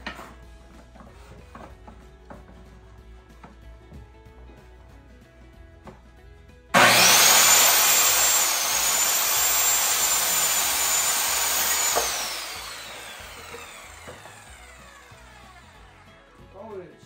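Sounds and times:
electric saw whining: 6.8s - 16.3s.

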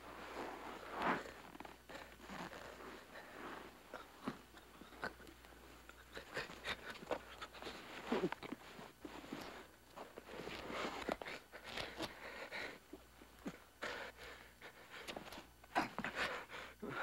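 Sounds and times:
clothing rustle: 0.0s - 12.2s
shuffling steps: 0.0s - 16.4s.

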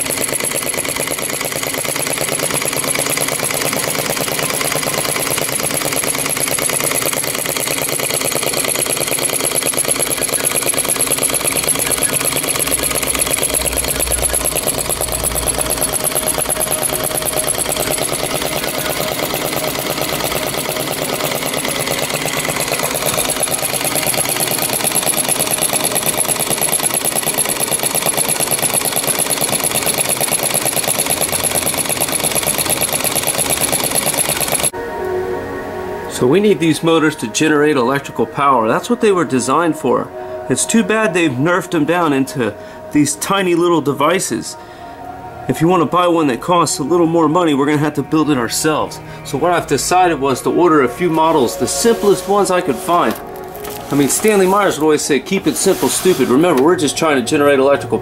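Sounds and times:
model engine clattering: 0.0s - 34.7s.

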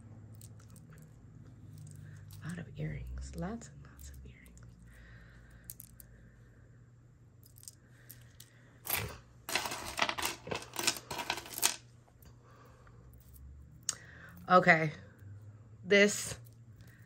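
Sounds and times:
metal jewelry clinking: 0.2s - 2.7s, 5.5s - 6.1s, 7.4s - 11.8s.

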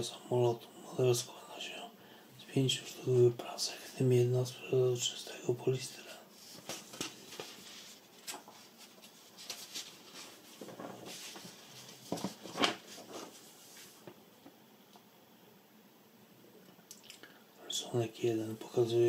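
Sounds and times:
paper rustling: 6.3s - 14.2s.

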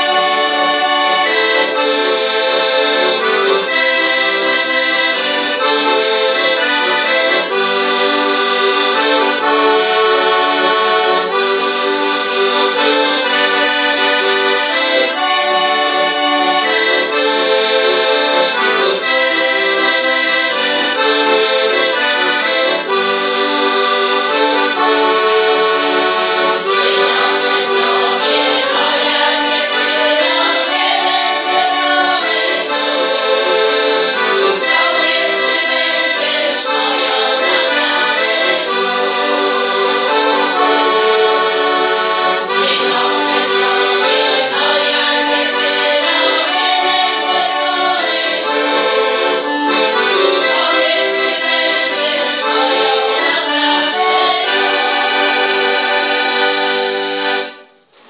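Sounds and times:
accordion playing melody: 0.0s - 58.0s
women singing: 26.6s - 39.0s, 42.5s - 48.9s, 49.8s - 56.4s.

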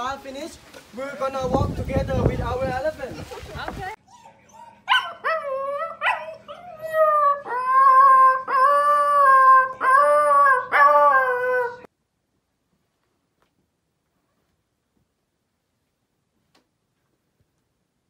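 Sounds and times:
puppy yelping and howling: 4.1s - 11.9s.

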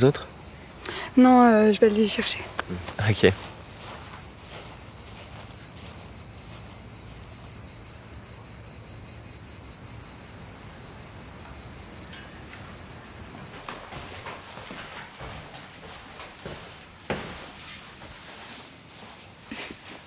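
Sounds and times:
insects chirring: 0.0s - 20.0s.

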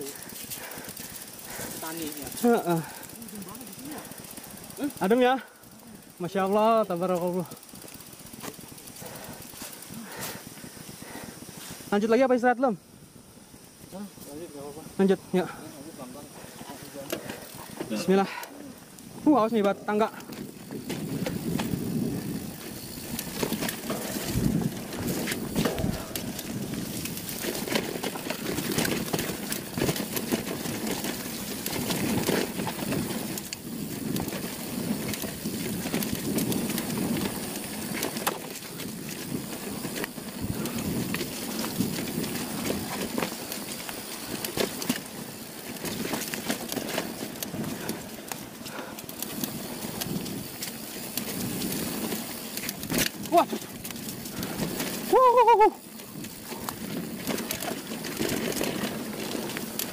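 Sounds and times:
bike rattling clicks: 0.0s - 12.2s, 13.4s - 59.9s
tyres crunching over dirt and leaves: 18.7s - 55.1s, 55.8s - 59.9s.

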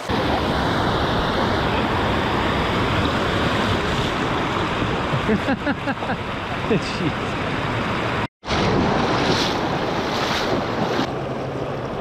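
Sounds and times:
wind buffeting microphone: 0.1s - 6.4s.

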